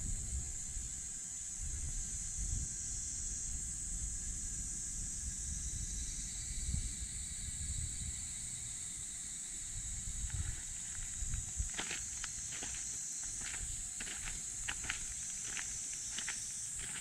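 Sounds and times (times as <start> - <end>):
high-pitched outdoor hiss: 0.0 - 17.0
footsteps on a path: 10.2 - 17.0.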